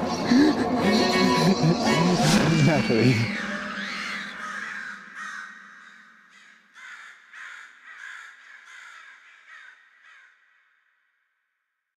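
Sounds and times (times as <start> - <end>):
crows cawing: 1.8 - 10.8.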